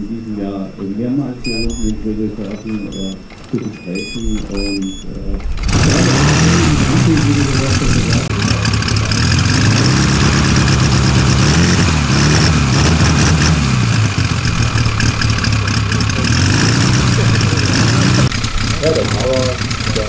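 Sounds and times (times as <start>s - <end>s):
model plane engine running: 5.5s - 20.0s.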